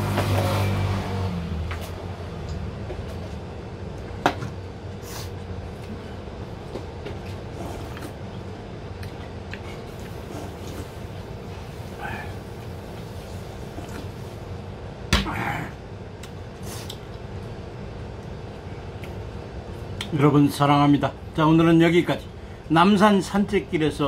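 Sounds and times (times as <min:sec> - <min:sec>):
steady low hum: 0:00.0 - 0:24.0
person sipping: 0:07.3 - 0:08.2, 0:09.0 - 0:14.4.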